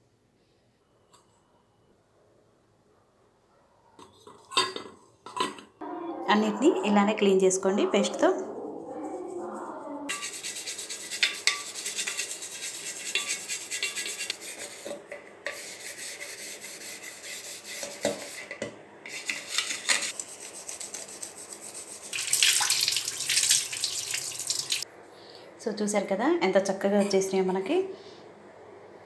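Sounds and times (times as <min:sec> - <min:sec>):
toothbrush scrubbing metal: 0:09.1 - 0:24.8
tap water running and splashing: 0:22.1 - 0:24.8.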